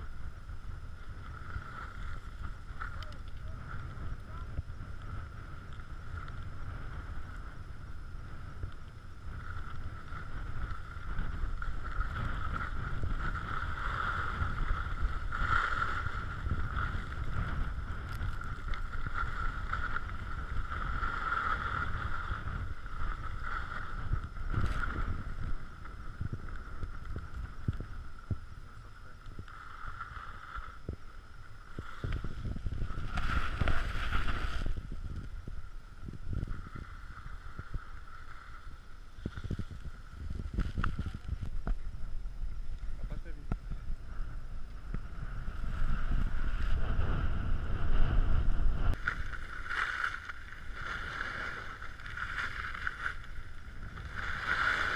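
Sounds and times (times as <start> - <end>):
wind buffeting microphone: 0.0 - 54.9
skis sliding on snow: 0.9 - 41.5, 44.2 - 54.9.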